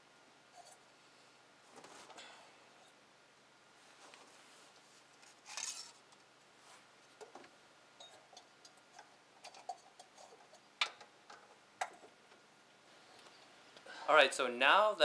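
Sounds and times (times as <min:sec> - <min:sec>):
rustle: 0:03.8 - 0:07.5.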